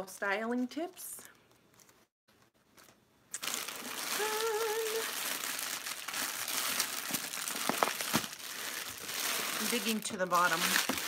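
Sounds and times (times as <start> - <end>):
packaging rustling and crinkling: 1.7 - 11.0
person humming a note: 4.2 - 5.1.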